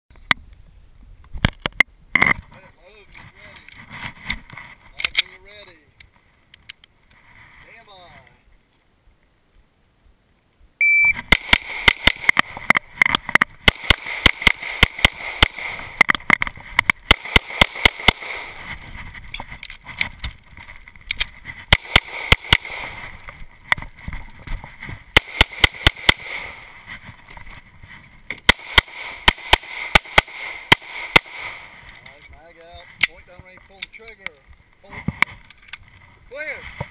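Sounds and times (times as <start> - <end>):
shot timer beep: 10.8 - 11.2
pistol shots: 11.2 - 12.5, 13.6 - 16.0, 17.0 - 18.6, 21.7 - 23.1, 25.1 - 26.7, 28.4 - 31.7.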